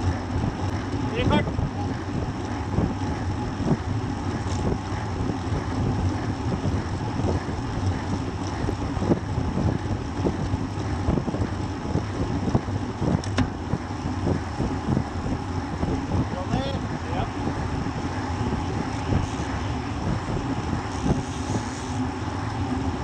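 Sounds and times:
knocks and rattles from road: 0.0 - 23.0
tyres humming on asphalt: 0.0 - 23.0
wind rushing over microphone: 0.0 - 23.0.

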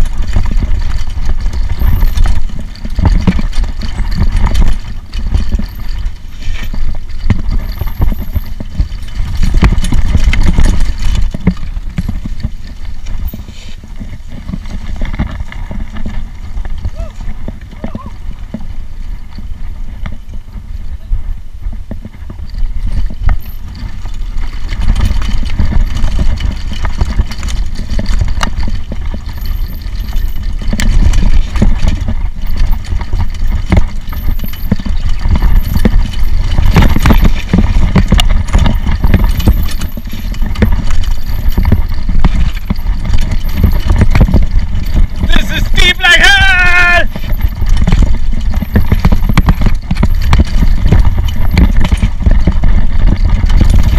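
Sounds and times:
bike rattling over bumps: 0.0 - 53.9
wind rushing over microphone: 34.8 - 53.9.

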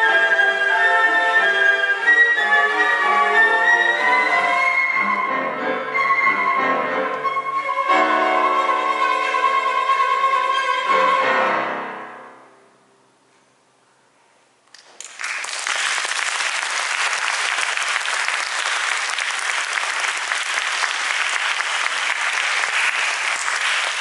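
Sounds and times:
audience applause: 14.8 - 24.0.

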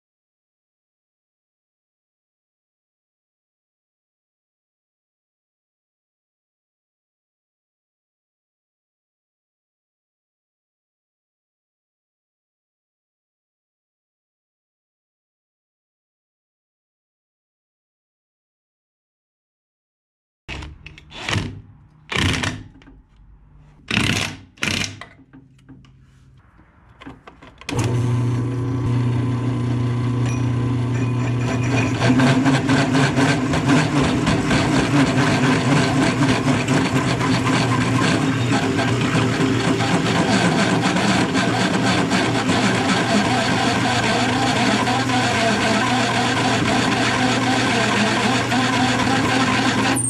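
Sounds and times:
knocks and scrapes: 20.5 - 27.7
drill press motor humming: 27.7 - 50.0
hole saw cutting steel: 30.3 - 50.0.

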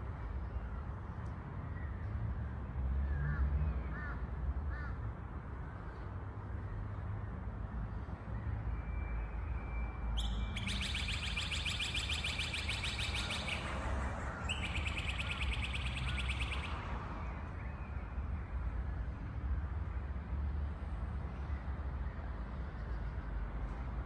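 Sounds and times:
bird chirps: 10.1 - 16.9
bird chattering trill: 10.2 - 13.7, 14.5 - 16.7.

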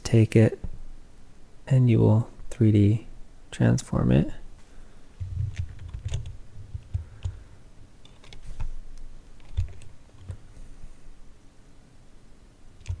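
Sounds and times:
keyboard typing: 5.3 - 7.4, 8.0 - 8.7, 9.4 - 10.4, 12.8 - 13.0.

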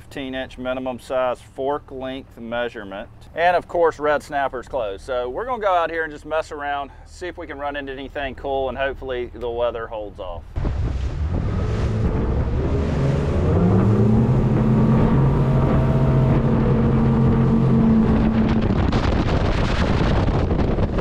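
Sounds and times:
wind buffeting microphone: 10.4 - 21.0
outboard motors throttling up: 10.6 - 20.9.

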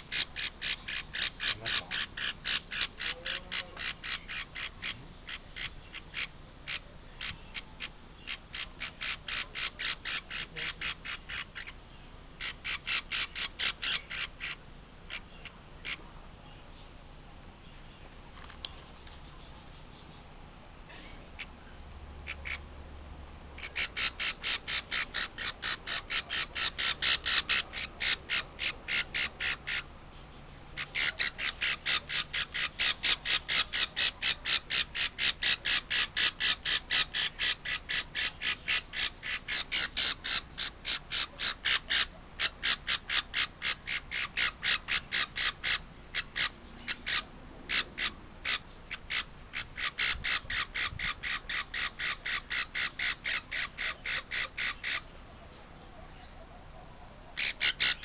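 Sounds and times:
parrot chick cheeping: 23.6 - 29.9, 30.8 - 58.0.

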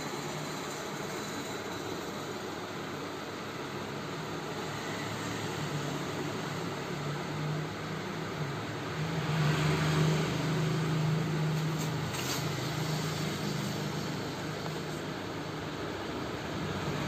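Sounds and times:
low mechanical hum: 0.0 - 17.0.

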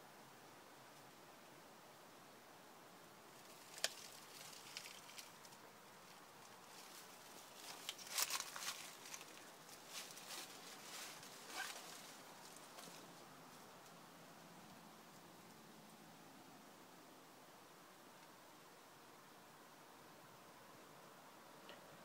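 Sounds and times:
faint hiss: 0.0 - 22.0
rustling among rocks and leaves: 3.2 - 14.1
crackling: 3.3 - 14.0.

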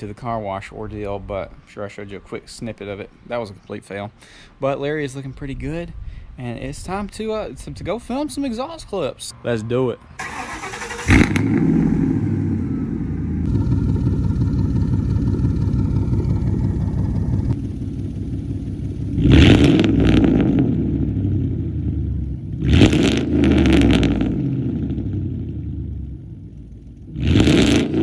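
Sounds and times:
car exhaust choppy idle and revving: 11.1 - 28.0.

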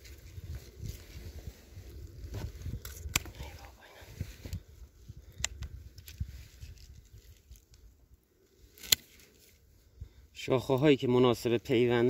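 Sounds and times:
pruning shears snip: 2.7 - 3.6, 8.7 - 9.4
pruning shears clicking: 2.8 - 3.4, 8.7 - 9.2.

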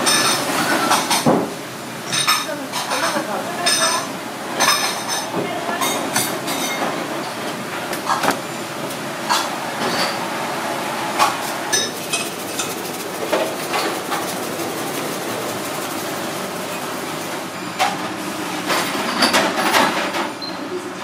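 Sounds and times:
steady background noise: 0.0 - 21.0.

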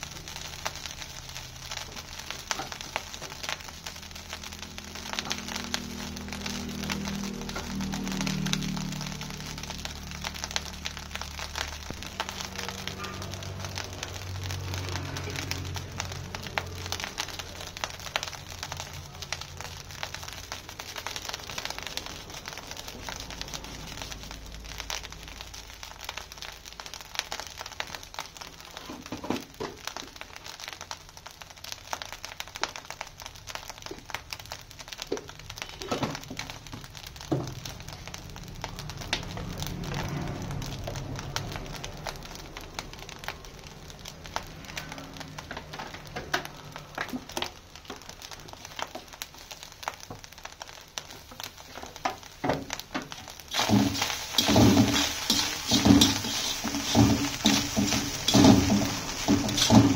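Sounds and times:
rice sizzling in a wok: 0.0 - 59.9
metal spatula knocking pan: 53.6 - 59.9.

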